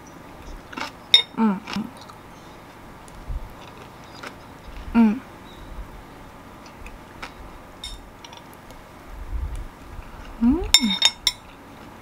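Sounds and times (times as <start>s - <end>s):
person humming: 1.3s - 1.9s, 4.9s - 5.3s, 10.3s - 11.0s
spoon clinking on ceramic bowl: 7.8s - 8.1s, 10.8s - 11.4s.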